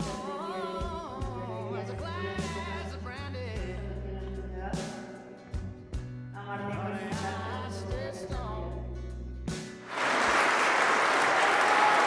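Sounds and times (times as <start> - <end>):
music with singing voice: 0.0 - 9.9
crowd applauding: 9.8 - 12.0.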